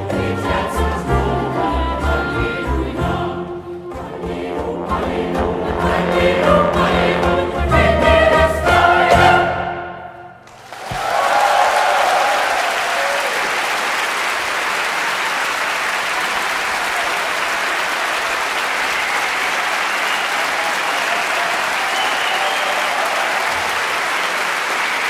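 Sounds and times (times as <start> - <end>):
audience applauding: 10.4 - 25.0.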